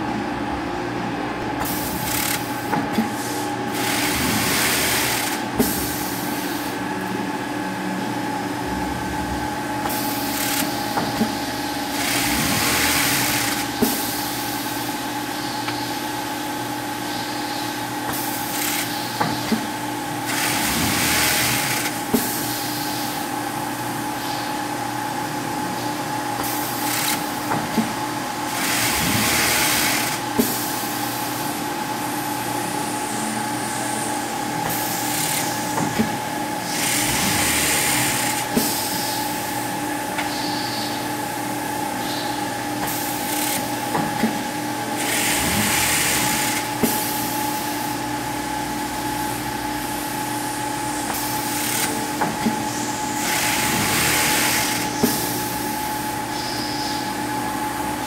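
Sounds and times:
machine humming: 0.0s - 58.0s
machine hiss: 1.6s - 7.5s, 9.1s - 57.8s.

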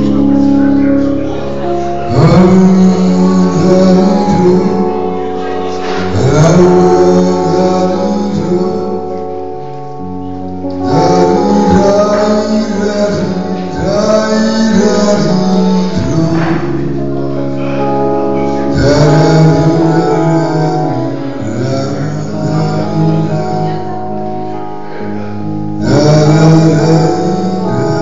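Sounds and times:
electronic keyboard accompaniment: 0.0s - 28.0s
man singing through microphone: 0.0s - 28.0s.

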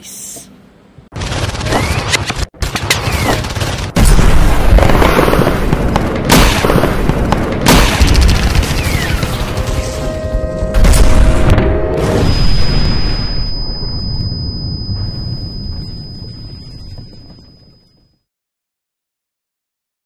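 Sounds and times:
gunfire bursts: 1.2s - 10.0s
cinematic music: 6.2s - 13.0s.

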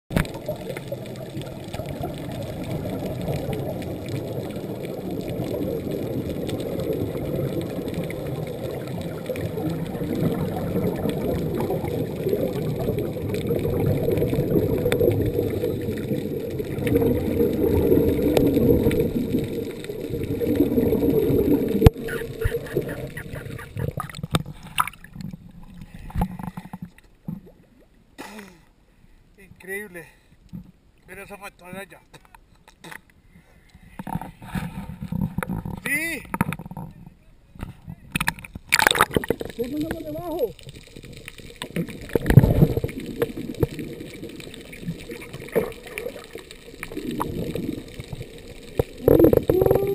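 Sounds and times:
muffled underwater bubbling: 0.1s - 26.7s, 38.7s - 49.9s
water splashes: 0.1s - 27.9s, 37.6s - 49.9s.

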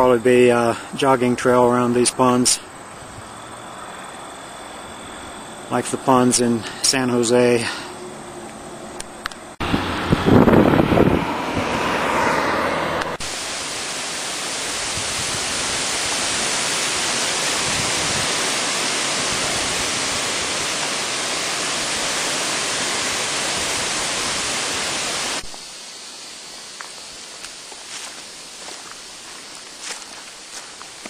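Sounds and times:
steady static hiss: 0.0s - 11.2s, 12.8s - 31.0s
rough rumbling noise: 7.4s - 13.6s.

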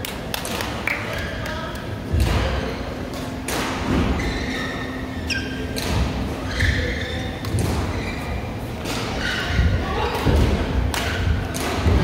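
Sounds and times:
rackets striking shuttlecocks: 8.8s - 12.0s.

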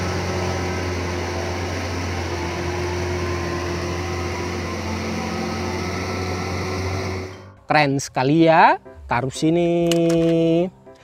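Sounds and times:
diesel truck engine droning: 0.0s - 7.8s.

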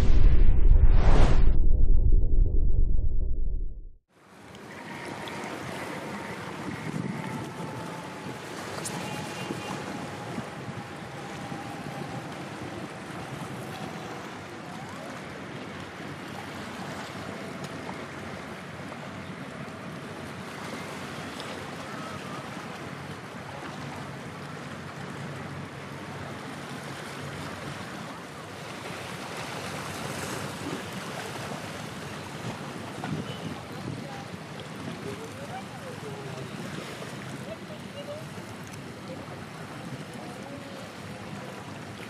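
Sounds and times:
wind on microphone: 0.0s - 4.0s, 5.6s - 16.1s, 32.4s - 35.7s
choppy waves: 0.0s - 42.0s.

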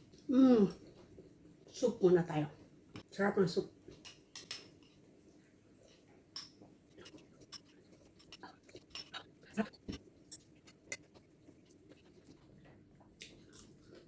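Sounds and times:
person sipping soup: 6.9s - 14.0s.

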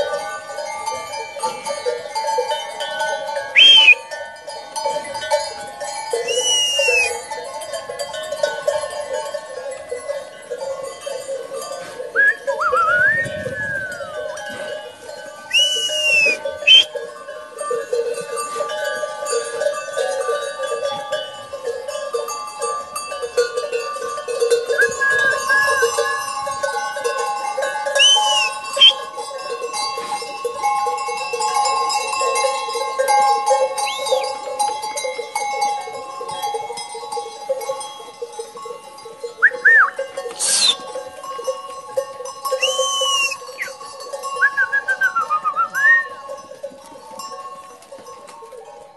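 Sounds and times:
sheep bells jangling: 0.0s - 48.9s
short high tones: 3.6s - 4.0s.

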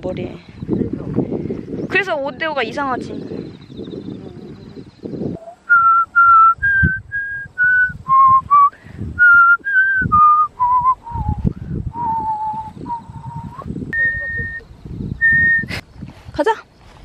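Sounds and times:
wind rumble on microphone: 0.0s - 17.0s
person whistling a tune: 5.7s - 15.7s.

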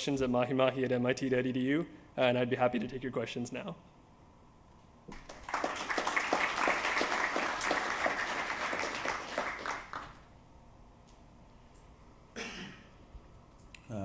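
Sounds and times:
audience applauding: 5.1s - 10.3s.

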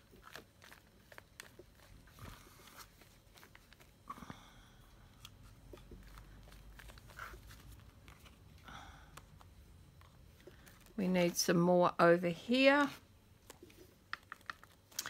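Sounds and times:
paper rustling: 0.0s - 4.0s, 5.4s - 8.6s.

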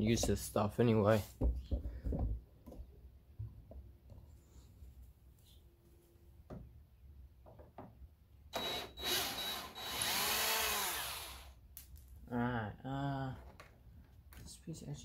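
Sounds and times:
cordless drill whirring: 8.5s - 11.6s.

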